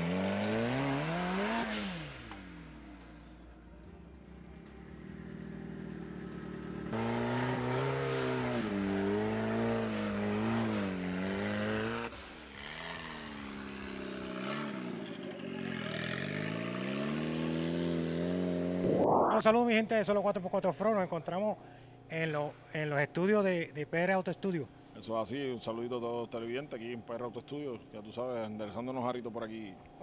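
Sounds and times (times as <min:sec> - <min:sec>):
engine revving: 0:00.0 - 0:19.3.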